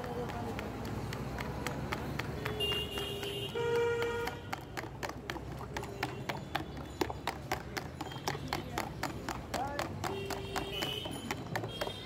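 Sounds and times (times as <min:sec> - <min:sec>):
traffic rumble: 0:00.0 - 0:12.0
vehicle horn: 0:02.4 - 0:04.5, 0:10.1 - 0:12.0.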